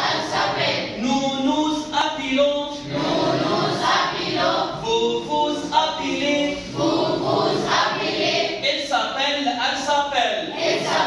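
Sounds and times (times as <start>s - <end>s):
students reciting in unison: 0.0s - 1.1s, 2.6s - 8.7s, 10.4s - 11.0s.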